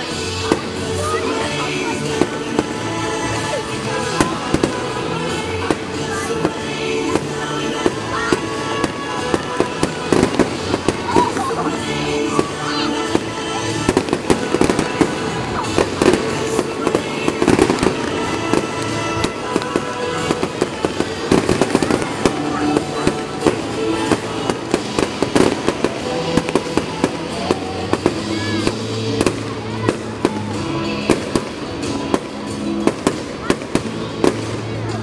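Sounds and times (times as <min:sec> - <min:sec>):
fireworks bursting and crackling: 0:00.0 - 0:35.0
music playing: 0:00.0 - 0:35.0.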